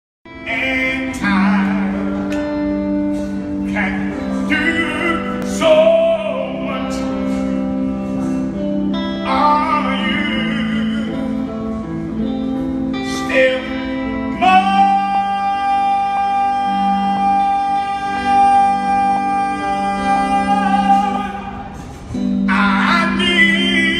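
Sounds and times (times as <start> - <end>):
man singing operatically: 0.4 - 2.3, 3.6 - 7.2, 9.2 - 11.5, 13.1 - 21.8, 22.5 - 23.9.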